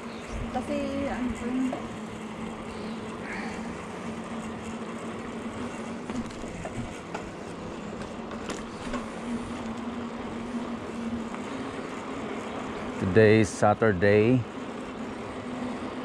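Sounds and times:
bicycle tyre noise: 0.0s - 16.0s.

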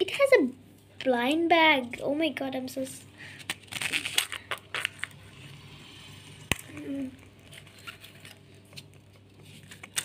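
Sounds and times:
packaging rustling: 3.3s - 5.2s, 6.5s - 10.0s.

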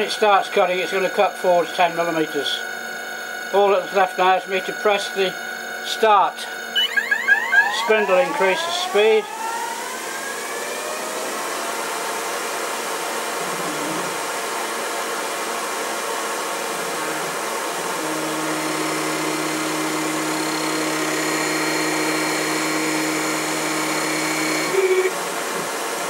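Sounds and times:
steady hum: 1.1s - 25.2s
lathe spindle whirring: 6.4s - 13.3s, 14.2s - 25.5s
thin high whine: 6.5s - 11.6s.

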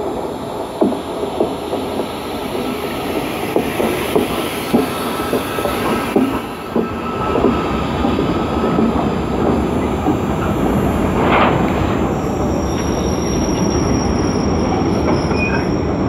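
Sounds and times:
train rolling past: 0.0s - 16.0s.

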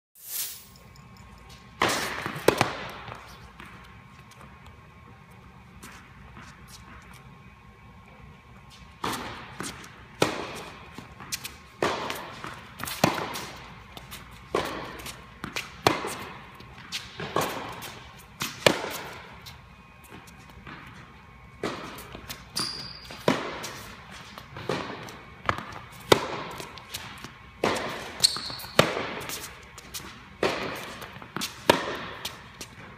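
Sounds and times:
ball bouncing on hard court: 1.0s - 3.9s, 9.0s - 19.3s, 21.6s - 32.8s
racket hitting tennis ball: 1.8s - 3.9s, 9.0s - 21.0s, 21.6s - 32.9s.

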